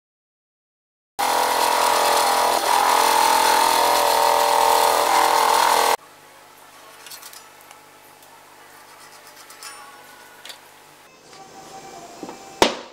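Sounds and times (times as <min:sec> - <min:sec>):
lathe drum sander whining: 0:01.2 - 0:06.0.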